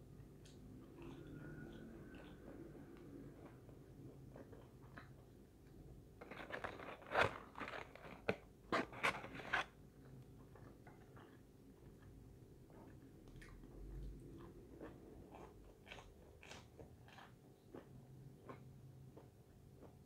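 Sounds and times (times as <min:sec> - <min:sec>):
close-up chewing: 0:00.4 - 0:05.4, 0:10.0 - 0:20.0.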